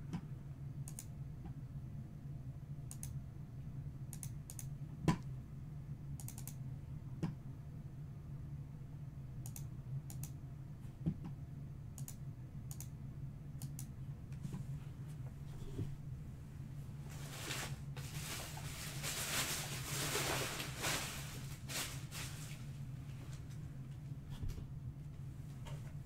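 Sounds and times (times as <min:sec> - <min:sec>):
steady low hum: 0:00.0 - 0:26.0
sharp clicks: 0:06.2 - 0:06.6, 0:09.4 - 0:10.4, 0:12.0 - 0:12.9.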